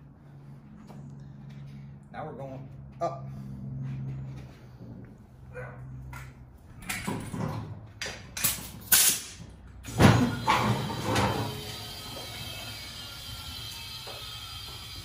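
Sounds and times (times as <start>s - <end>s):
sharp metallic clank: 8.4s - 10.7s.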